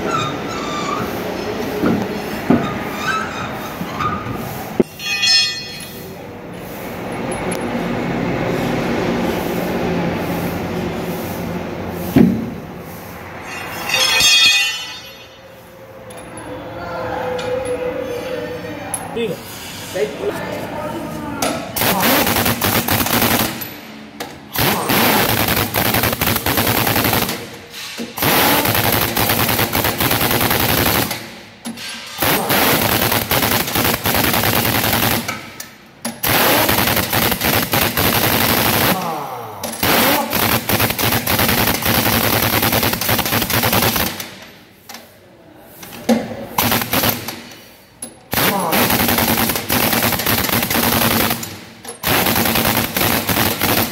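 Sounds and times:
pneumatic impact wrench: 21.7 - 45.0, 45.8 - 53.9.

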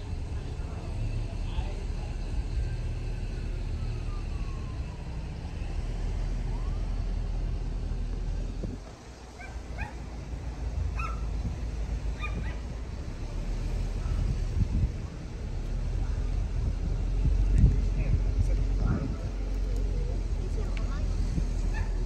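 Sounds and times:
car road rumble: 0.0 - 22.0
dog barking: 9.4 - 10.0, 11.0 - 11.3, 12.2 - 12.6, 21.7 - 22.0.

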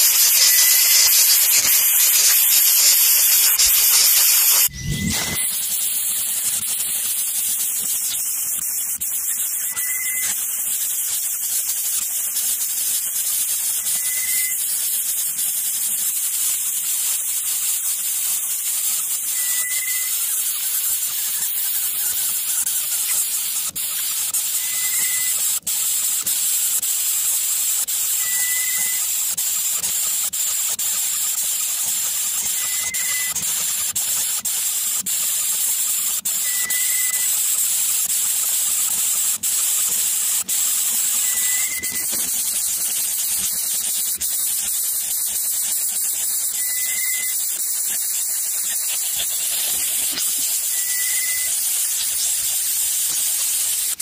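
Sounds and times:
steady high hiss: 0.0 - 15.0.

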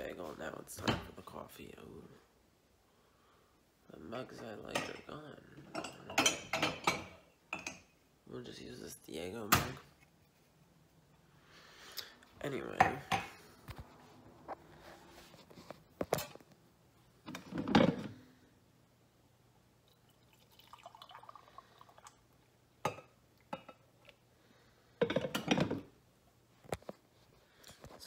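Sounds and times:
mug and pot clunking on counter: 12.8 - 13.4, 25.0 - 25.9
coffee pouring into a mug: 19.8 - 22.5.

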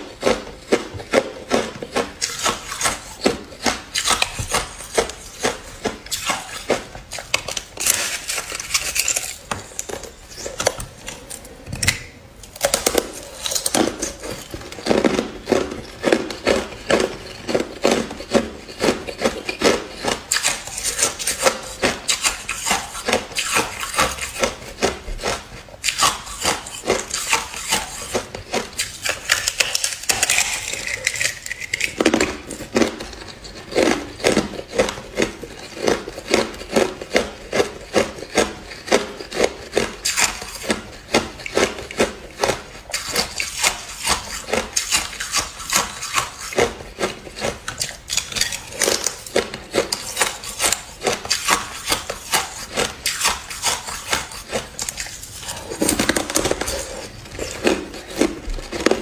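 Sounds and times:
ice being chewed: 0.0 - 59.0.

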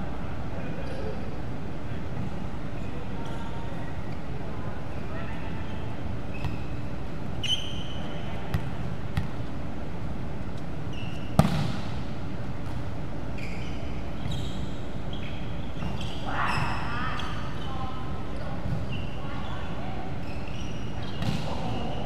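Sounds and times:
shoes squeaking on wooden court: 0.8 - 1.2, 5.7 - 9.3, 10.6 - 11.5, 12.6 - 22.0
volleyball serve smack: 11.4 - 11.9.

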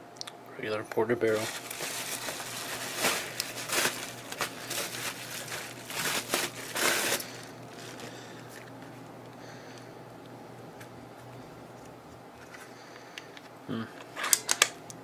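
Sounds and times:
bubble wrap crinkling: 1.2 - 9.1.

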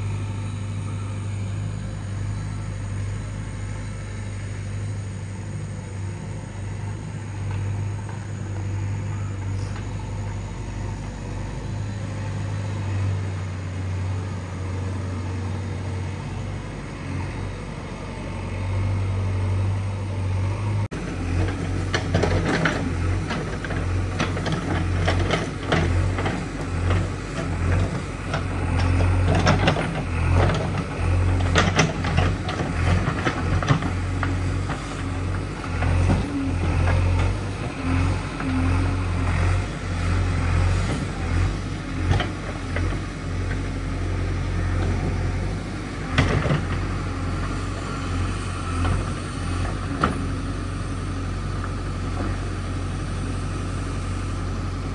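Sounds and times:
diesel engine running: 0.0 - 54.9
backhoe clanking and knocking: 21.0 - 52.7.

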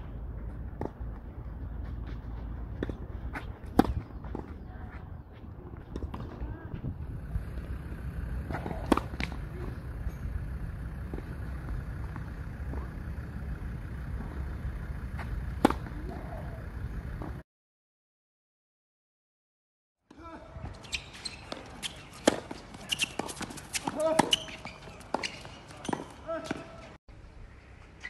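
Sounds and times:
steady low rumble: 0.0 - 17.4
tennis racket striking ball: 2.1 - 4.6, 7.5 - 16.6, 21.4 - 26.7.

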